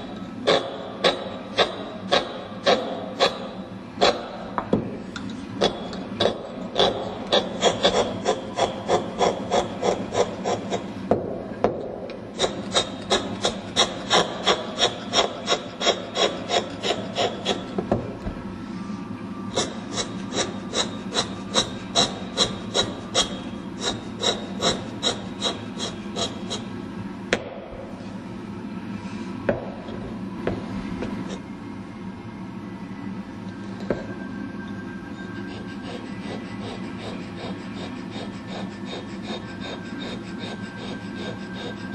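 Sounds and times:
chisel scraping slate: 0.4s - 4.3s, 5.6s - 10.9s, 12.4s - 17.8s, 19.5s - 26.7s, 35.2s - 41.9s.

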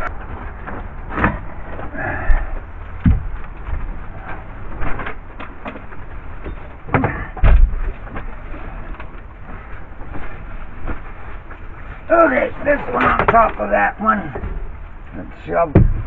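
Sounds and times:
boards and cables handled: 0.0s - 16.0s
heavy thump: 1.1s - 5.0s, 6.9s - 8.2s, 15.7s - 16.0s.

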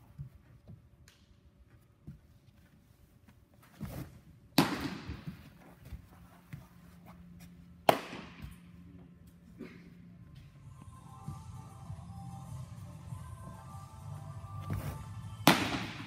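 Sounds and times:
baseball popping into mitt: 7.8s - 8.6s, 15.4s - 16.0s.

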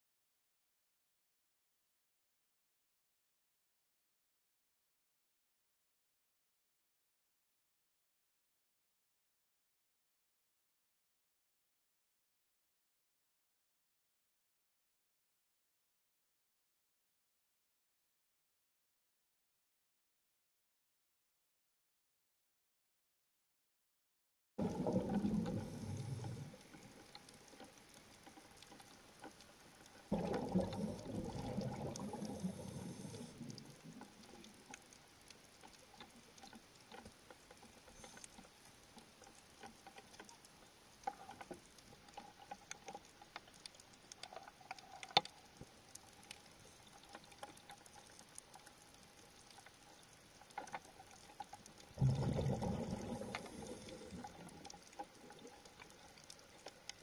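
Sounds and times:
underwater bubbles rushing: 24.6s - 27.1s, 29.9s - 34.7s, 51.0s - 56.0s
faint clicks and ticks: 24.6s - 57.0s.

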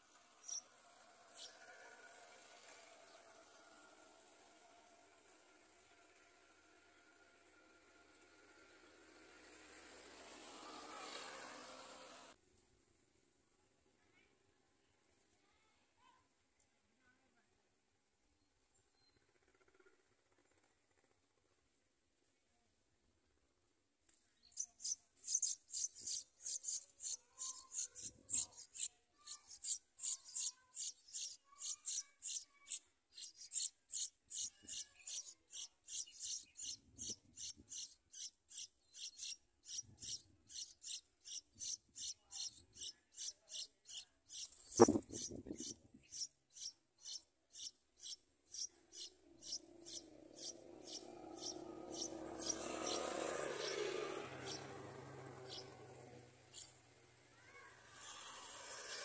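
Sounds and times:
nestlings begging calls: 0.4s - 0.7s, 1.3s - 2.0s, 24.5s - 56.8s, 57.5s - 59.0s
hiss: 57.9s - 59.0s.

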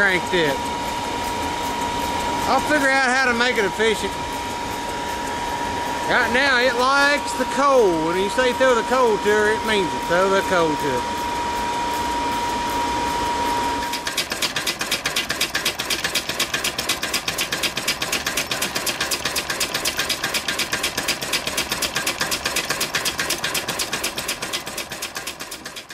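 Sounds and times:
steam hissing with whistling tone: 0.0s - 15.2s
steam engine exhaust chuffs: 0.0s - 25.9s.

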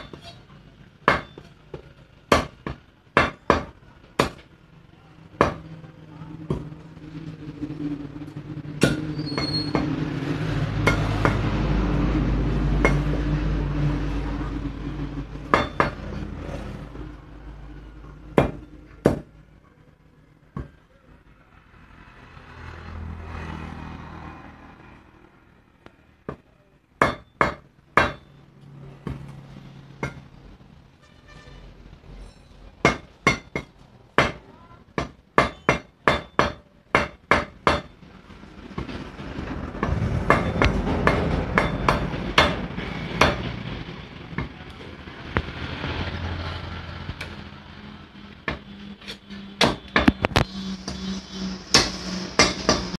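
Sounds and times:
cleaver chopping on wooden block: 1.1s - 1.5s, 2.3s - 4.4s, 5.4s - 5.6s, 18.4s - 19.3s, 27.0s - 28.2s.

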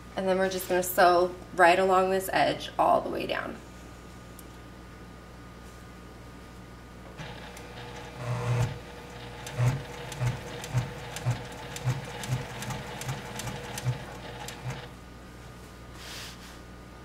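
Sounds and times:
sewing machine stitching: 7.2s - 14.9s.

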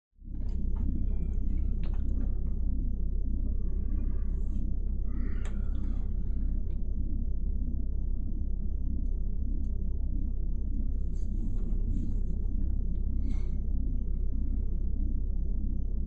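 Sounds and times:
deep low rumble: 0.2s - 16.0s
faint clicks: 5.4s - 5.9s.

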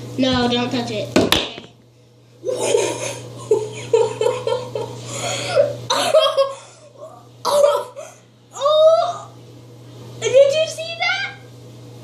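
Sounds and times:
steady low hum: 0.0s - 12.0s
person laughing high-pitched: 2.4s - 8.2s.

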